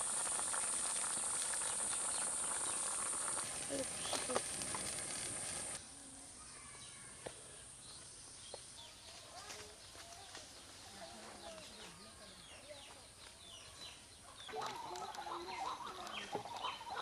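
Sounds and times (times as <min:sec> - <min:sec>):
steady high hiss: 0:00.0 - 0:06.4
birds chirping and calling: 0:09.9 - 0:17.0.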